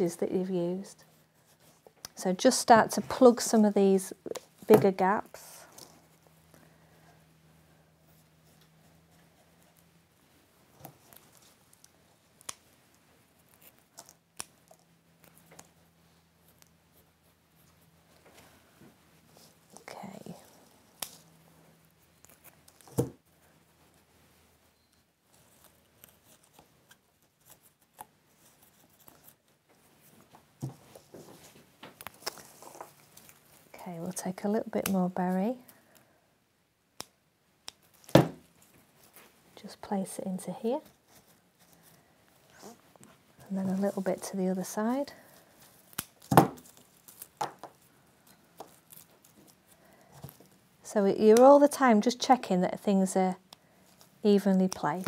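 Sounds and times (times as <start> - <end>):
handling foliage: 25.3 - 36.0, 40.8 - 50.6
foliage rustling: 40.8 - 50.6.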